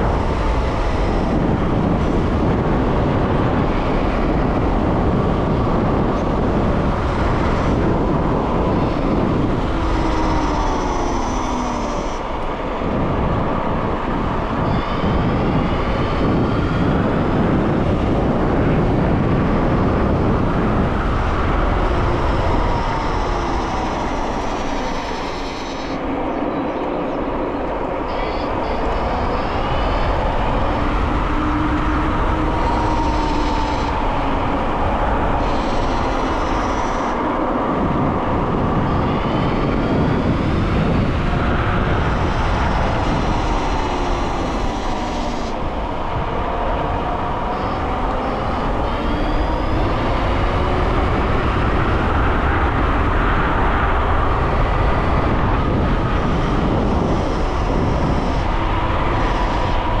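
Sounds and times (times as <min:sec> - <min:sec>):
electric motor whine: 0:00.0 - 0:13.6, 0:28.0 - 1:00.0
wind on microphone: 0:00.0 - 1:00.0.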